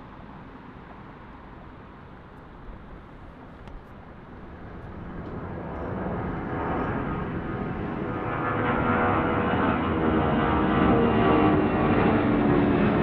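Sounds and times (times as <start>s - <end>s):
jet engine whining tone: 0.0s - 13.0s
jet engine rush: 2.7s - 13.0s.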